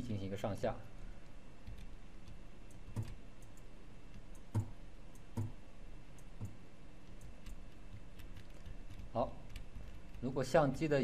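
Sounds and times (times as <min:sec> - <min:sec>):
keyboard keys clicking: 0:01.6 - 0:03.6, 0:06.2 - 0:10.3.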